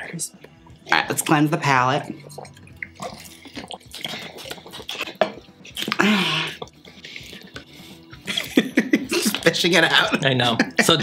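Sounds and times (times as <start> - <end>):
drinking from plastic bottle: 1.9 - 10.3.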